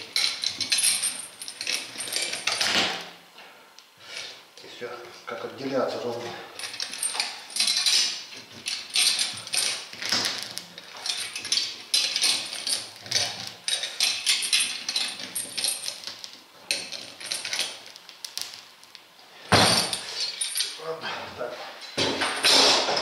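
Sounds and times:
pliers and chain clinking: 0:00.0 - 0:03.0, 0:06.6 - 0:18.0, 0:19.5 - 0:20.8.

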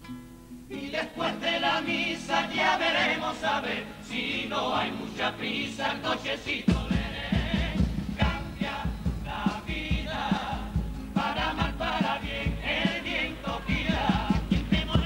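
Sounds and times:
guitars: 0:00.0 - 0:15.0
choir singing in harmony: 0:00.7 - 0:15.0
drum beating steady pulse: 0:06.5 - 0:15.0.

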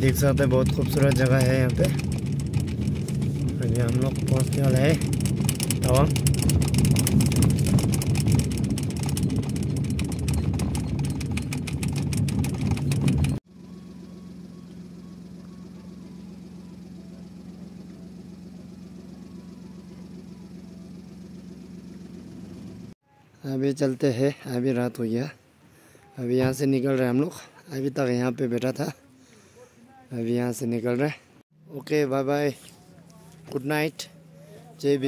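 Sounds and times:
car engine and tyre noise: 0:00.0 - 0:23.0
steady low hum: 0:00.0 - 0:23.0, 0:31.6 - 0:35.0.

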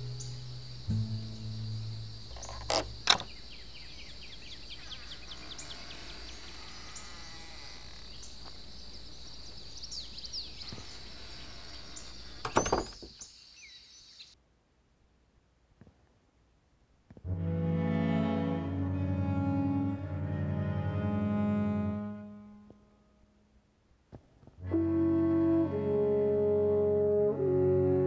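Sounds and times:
insect hum: 0:00.0 - 0:14.4
door knob and latch clicks: 0:02.3 - 0:03.3
door thunking shut: 0:02.3 - 0:03.3, 0:12.4 - 0:13.2.

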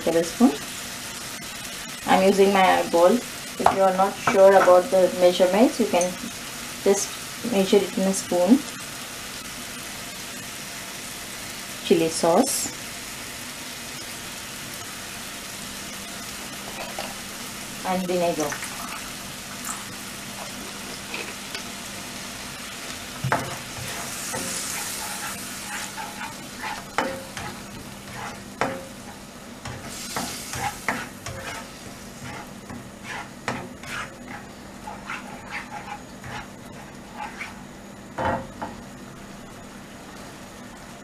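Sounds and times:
sauce sizzling in a wok: 0:00.0 - 0:41.0
spatula knocking and scraping pan: 0:03.6 - 0:04.8, 0:23.2 - 0:37.6.

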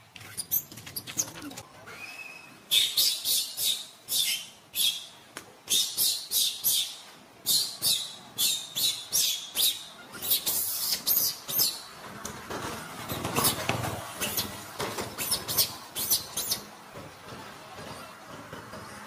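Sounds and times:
macaque squeaking: 0:00.2 - 0:05.1, 0:05.7 - 0:11.9, 0:14.2 - 0:14.6, 0:15.2 - 0:16.7.

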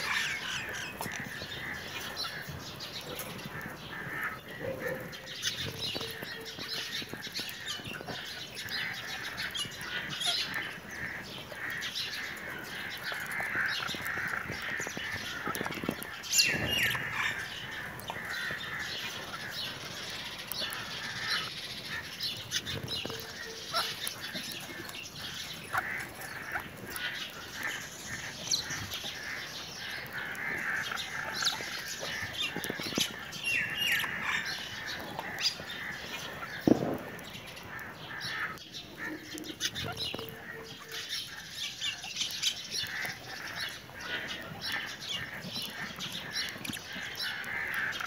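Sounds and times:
budgerigars twittering: 0:00.0 - 0:48.0.

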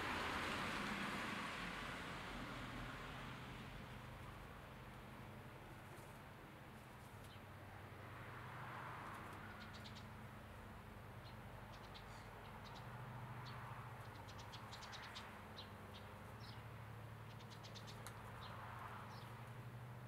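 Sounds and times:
birds chirping: 0:11.2 - 0:19.4.

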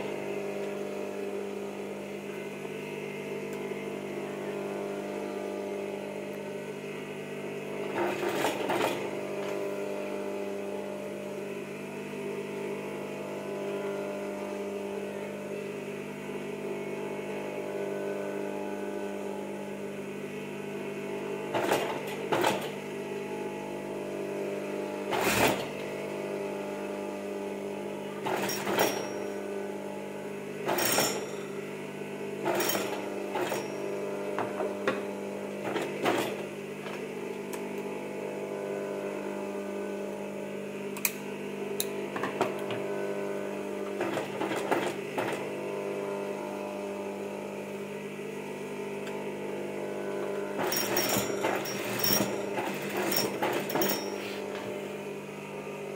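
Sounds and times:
sewing machine motor hum: 0:00.0 - 0:55.9
short loud sewing bursts: 0:25.1 - 0:25.7.

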